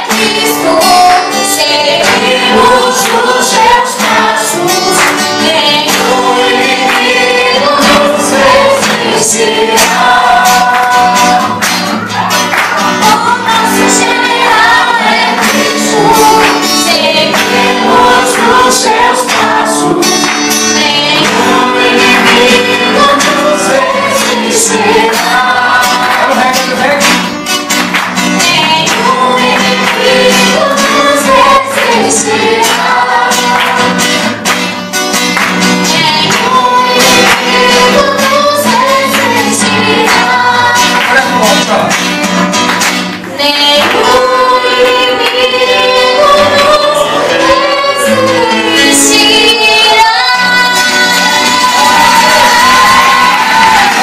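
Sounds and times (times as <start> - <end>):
woman singing: 0.0 - 11.6, 13.0 - 27.0, 43.3 - 54.0
strummed acoustic guitar: 0.0 - 54.0.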